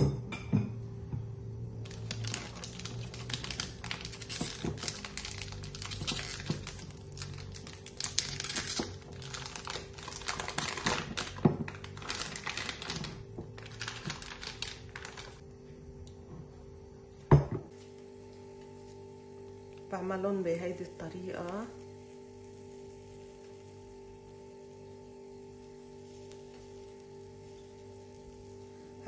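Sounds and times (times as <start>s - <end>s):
plastic piping bag crinkling: 1.8s - 15.4s, 25.6s - 28.9s.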